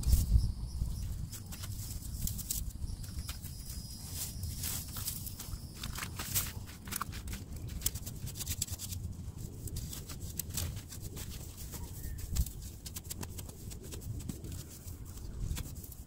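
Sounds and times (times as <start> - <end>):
footsteps scuffing over soil: 1.0 - 7.7
dry plant debris crackling: 1.0 - 16.0.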